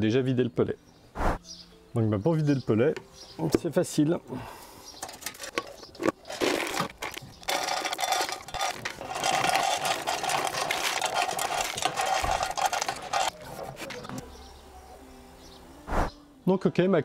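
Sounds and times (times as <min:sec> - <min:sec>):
pellets clattering: 0:05.0 - 0:14.2
wood pellets pouring into plastic bucket: 0:06.3 - 0:13.4.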